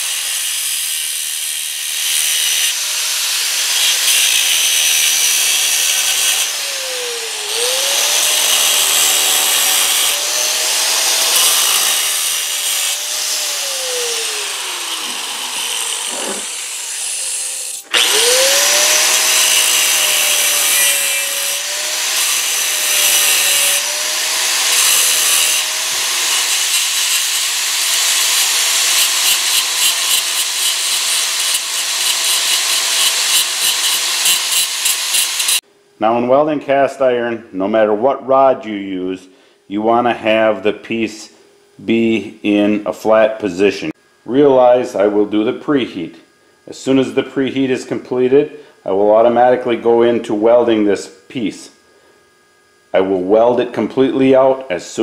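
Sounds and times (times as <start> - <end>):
angle grinder grinding metal: 0.0 - 35.6.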